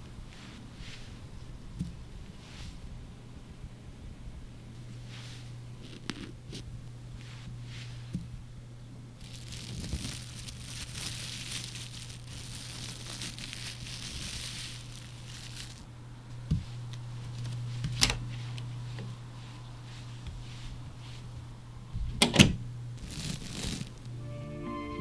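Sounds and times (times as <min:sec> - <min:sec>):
plastic wrap crinkling: 0:09.2 - 0:15.9, 0:23.0 - 0:24.1.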